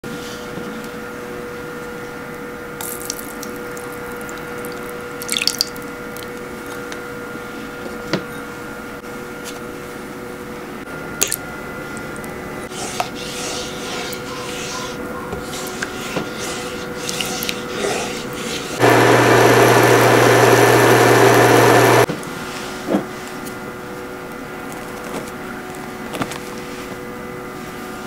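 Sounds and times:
steady hum: 18.8 - 22.1.

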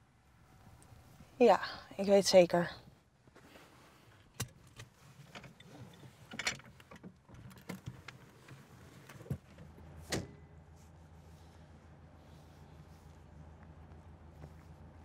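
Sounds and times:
low steady hum: 7.4 - 15.0.

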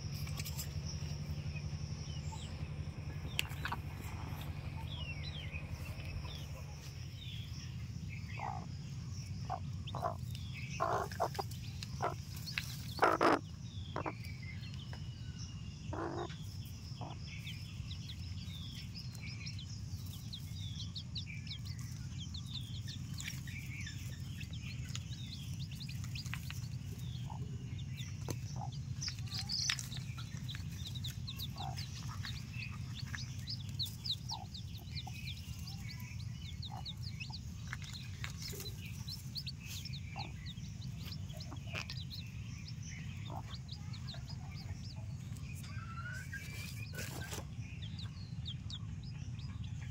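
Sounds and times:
chicks peeping: 0.0 - 49.9
steady low hum: 0.0 - 49.9
hen clucking: 8.4 - 8.7, 9.4 - 14.2, 15.9 - 17.2, 22.9 - 49.8.

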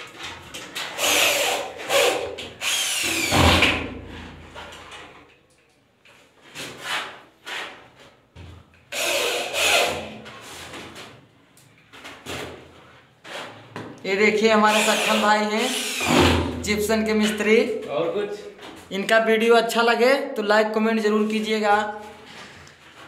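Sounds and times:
cordless drill driving screws: 0.8 - 3.7, 8.9 - 10.2, 14.7 - 16.3.

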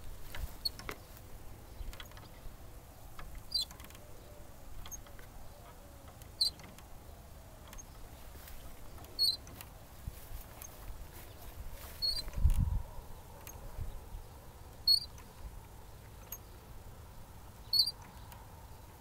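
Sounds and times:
swing hangers squeaking: 0.0 - 19.0
faint clicks: 0.2 - 2.5, 3.1 - 12.7, 17.7 - 19.0.

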